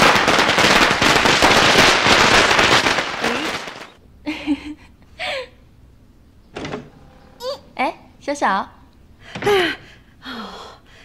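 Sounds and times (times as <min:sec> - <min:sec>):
firecrackers crackling: 0:00.0 - 0:04.0.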